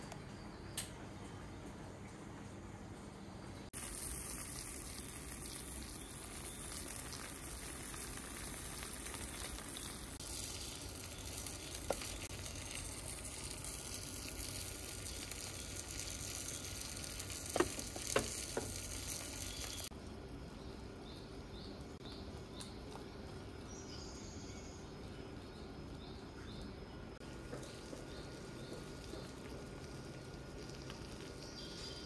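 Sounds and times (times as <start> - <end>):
rice pot sizzling and crackling: 3.7 - 20.2, 27.2 - 32.0
wooden lid knocking: 17.6 - 18.8.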